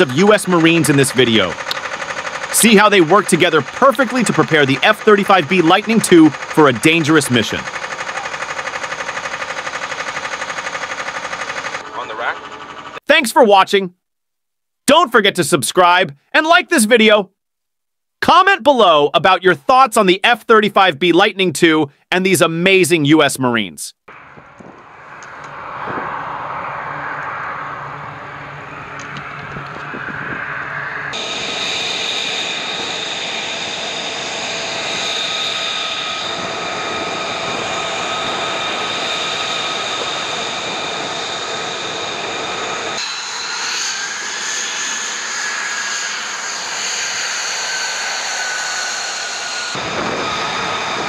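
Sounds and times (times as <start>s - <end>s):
aircraft machinery rushing hum: 0.0s - 13.1s, 24.1s - 51.0s.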